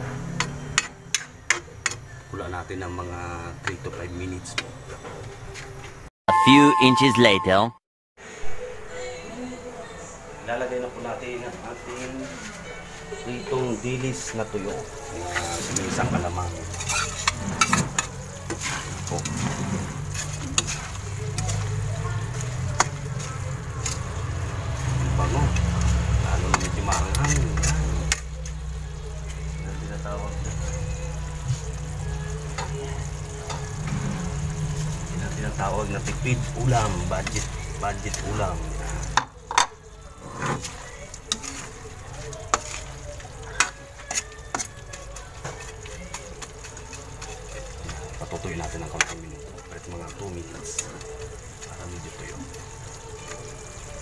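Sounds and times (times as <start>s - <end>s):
food sizzling: 0.0s - 4.6s, 11.4s - 54.0s
metal ladle scraping in a wok: 15.0s - 24.2s.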